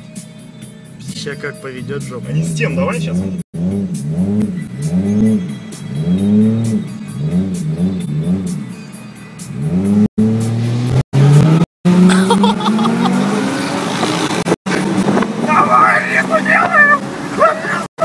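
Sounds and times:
car engine revving and accelerating: 1.8 - 18.0.

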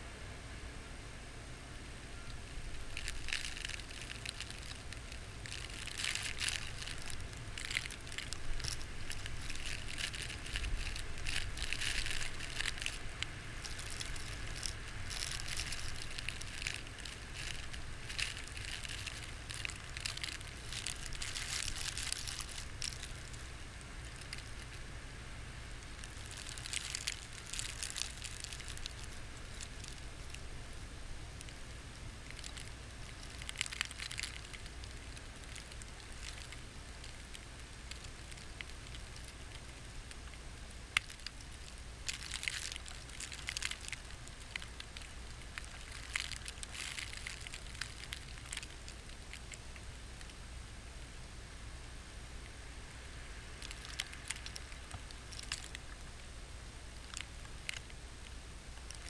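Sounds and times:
snow pattering against camera: 2.4 - 24.9, 25.7 - 30.5.

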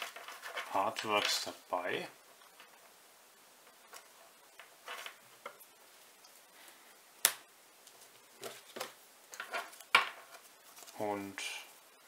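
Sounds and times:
handling rustles on tabletop: 0.0 - 1.6, 7.9 - 11.1.

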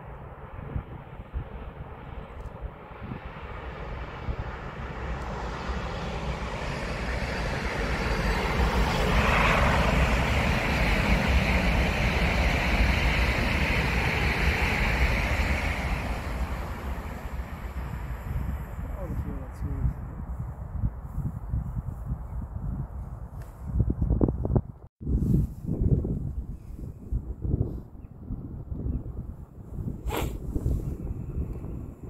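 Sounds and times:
high-speed train passing: 0.0 - 19.7.

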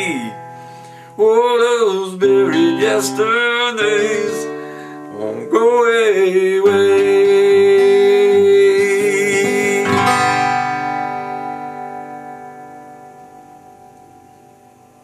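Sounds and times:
man singing: 0.0 - 10.7
acoustic guitar strumming: 0.0 - 15.0.

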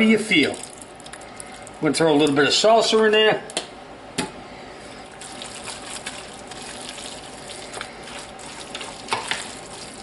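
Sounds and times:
spoon stirring wet mixture: 5.0 - 10.0.

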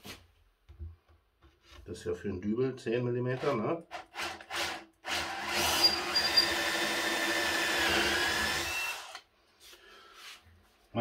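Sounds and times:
cordless drill boring through wood: 3.3 - 9.3.

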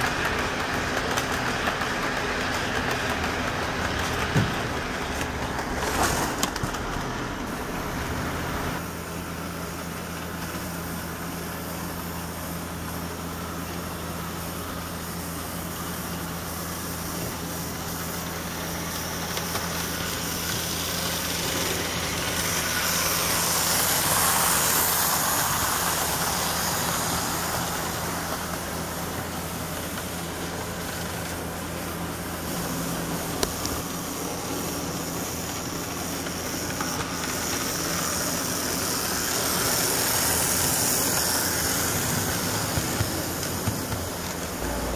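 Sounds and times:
model train rumbling: 0.0 - 44.9
electric hum: 44.4 - 44.9.

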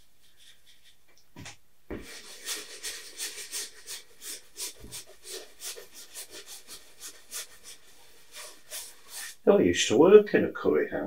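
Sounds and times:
brush scrubbing on canvas: 0.0 - 1.1, 1.9 - 9.6.

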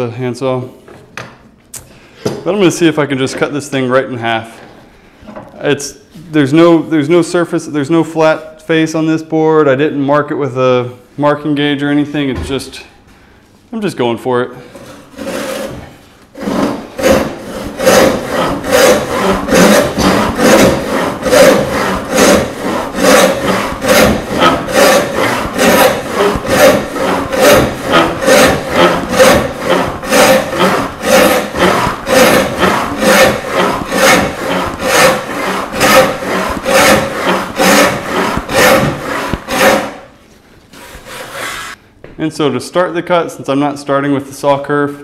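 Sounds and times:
hand saw rasping through wood: 15.1 - 40.1, 40.8 - 41.8.

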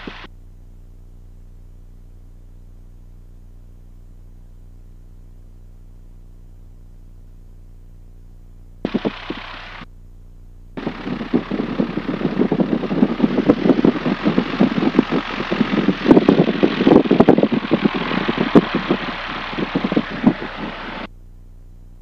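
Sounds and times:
aircraft piston engine idling: 0.0 - 0.3, 8.9 - 9.8, 10.8 - 21.1.

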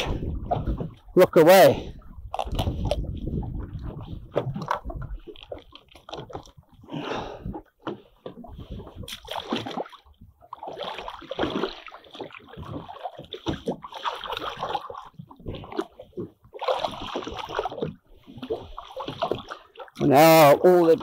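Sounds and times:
seawater splashing and sloshing: 0.0 - 21.0.

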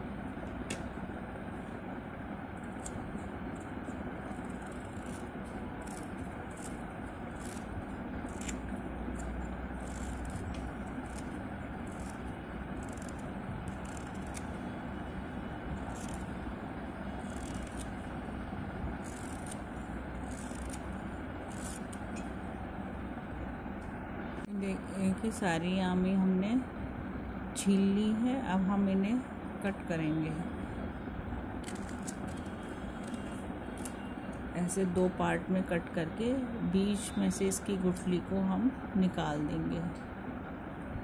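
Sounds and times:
low background rumble: 0.0 - 41.0
peeler scraping mango skin: 2.6 - 14.6, 15.8 - 16.4, 17.2 - 18.1, 19.0 - 22.3, 31.6 - 34.4.

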